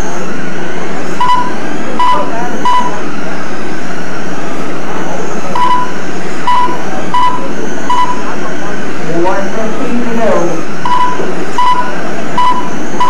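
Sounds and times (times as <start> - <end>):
loud steady background noise: 0.0 - 13.0
short electronic beeps: 1.2 - 3.0, 5.6 - 8.2, 10.8 - 13.0.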